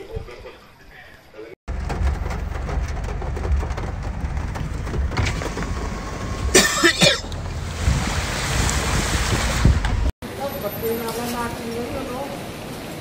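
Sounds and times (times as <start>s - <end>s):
car cabin rumble: 1.7s - 10.1s
person coughing: 6.5s - 7.3s.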